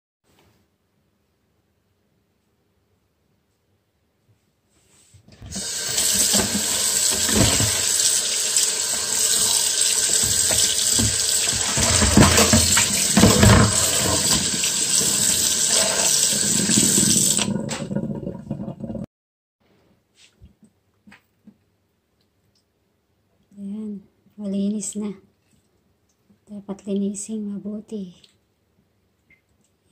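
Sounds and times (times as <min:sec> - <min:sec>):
tap water running into basin: 0:05.4 - 0:19.1
chicken rubbed and rinsed by hand: 0:05.5 - 0:17.8.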